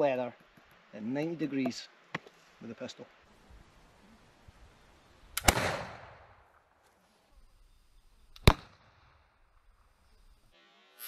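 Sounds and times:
flintlock pistol firing: 5.3s - 6.4s, 8.3s - 9.0s
sharp gunshot crack: 5.4s - 6.4s, 8.4s - 9.2s.

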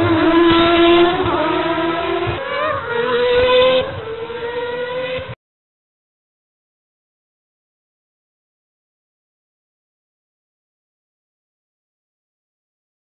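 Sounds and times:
race car engine revving: 0.0s - 5.4s.

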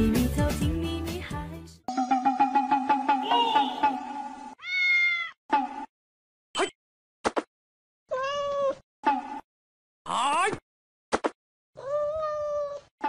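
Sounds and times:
pop song: 0.0s - 2.5s
cat meowing: 4.6s - 5.4s, 8.1s - 8.8s, 11.8s - 12.9s.

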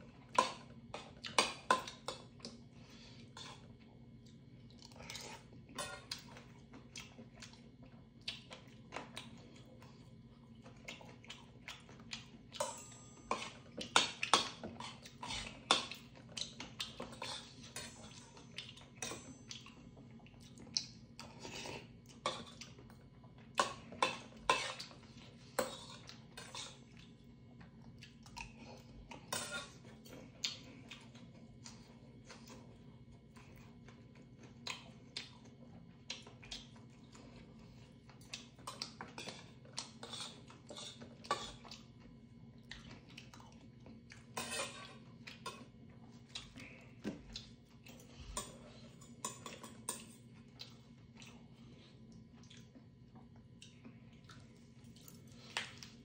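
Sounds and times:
utensils clinking on steel bowl: 12.6s - 14.6s, 17.0s - 19.6s, 44.4s - 45.6s, 48.3s - 50.2s.

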